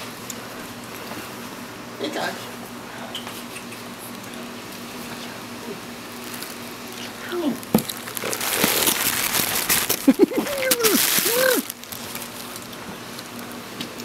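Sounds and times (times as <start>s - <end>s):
bubble wrap crinkling in box: 6.1s - 6.7s, 7.4s - 13.4s.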